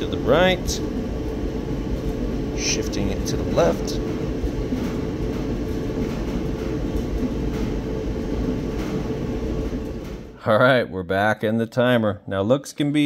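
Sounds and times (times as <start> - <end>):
electric dryer rumbling: 0.0 - 10.4.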